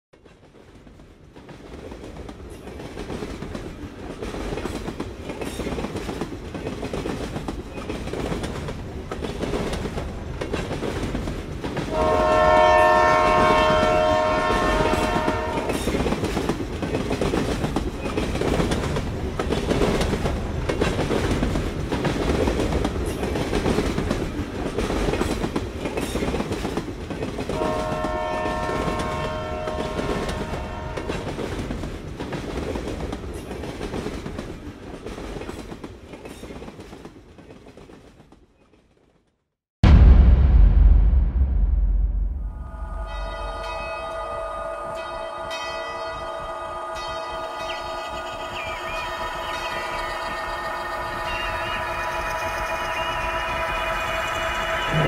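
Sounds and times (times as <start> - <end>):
train running on track: 0.2 - 39.2, 42.6 - 55.0
train horn chord: 11.9 - 16.1, 27.6 - 31.3, 42.5 - 54.2.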